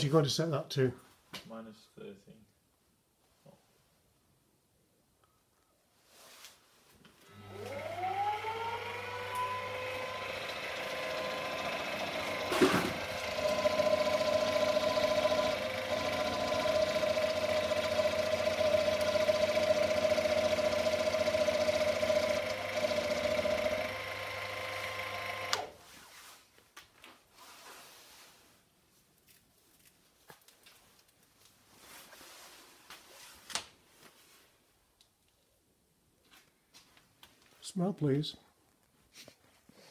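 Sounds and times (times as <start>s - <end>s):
mill spindle motor whining: 7.3s - 25.7s
end mill cutting metal: 7.4s - 25.7s.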